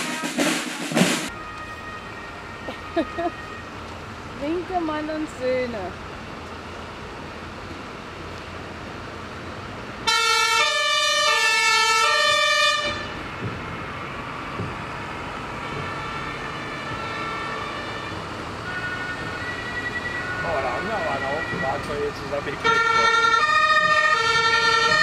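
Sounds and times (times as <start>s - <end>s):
fire engine two-tone horn: 0.0s - 3.8s, 10.0s - 14.0s, 15.5s - 25.0s
truck engines running: 1.3s - 25.0s.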